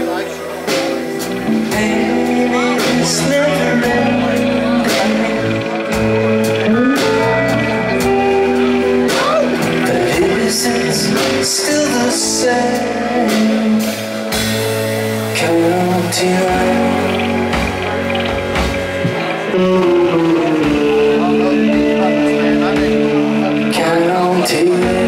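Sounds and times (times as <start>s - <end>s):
bass guitar: 0.0s - 25.0s
drums with cymbal crashes: 0.0s - 25.0s
electric guitar: 0.0s - 25.0s
man singing: 1.4s - 18.3s, 19.2s - 25.0s.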